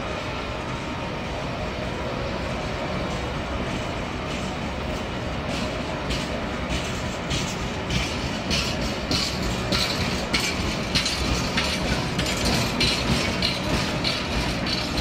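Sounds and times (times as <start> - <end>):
freight train rumbling past: 0.0 - 15.0
wheels clattering over rail joints: 3.1 - 15.0.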